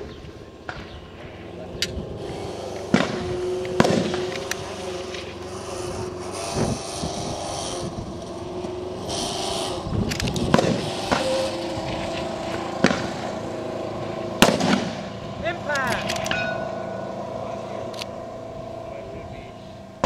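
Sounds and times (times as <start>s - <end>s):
engine-like hum: 0.0s - 20.0s
rifle shot cracks: 2.9s - 4.7s, 14.4s - 15.1s.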